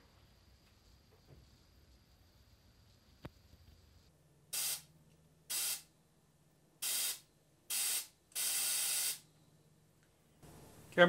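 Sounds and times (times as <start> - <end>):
spray gun air hissing: 4.6 - 4.9, 5.5 - 5.9, 6.8 - 9.2.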